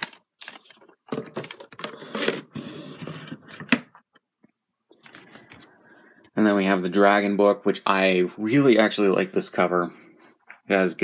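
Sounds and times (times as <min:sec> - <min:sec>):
cardboard packaging sliding and rustling: 0:01.4 - 0:03.6.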